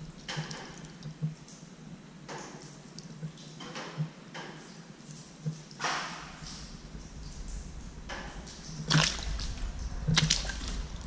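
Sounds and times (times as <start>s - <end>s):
low steady hum: 0.0s - 11.0s
water splashing on glass: 5.1s - 11.0s.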